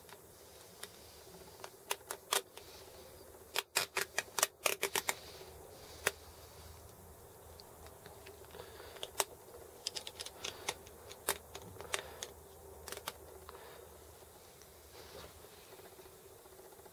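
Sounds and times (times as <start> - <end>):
metal parts clicking and tapping: 7.8 - 13.2.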